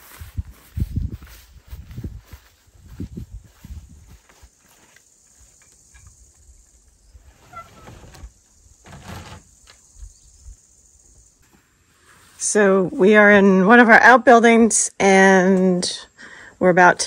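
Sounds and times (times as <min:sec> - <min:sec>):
footsteps on grass: 0:00.0 - 0:05.6, 0:11.4 - 0:13.1.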